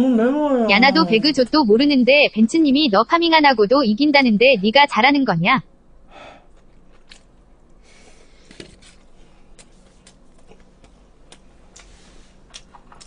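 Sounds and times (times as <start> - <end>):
low steady hum: 0.0 - 13.0
person chewing: 6.5 - 7.8, 8.8 - 13.0
mouth clicks and smacks: 9.6 - 13.0.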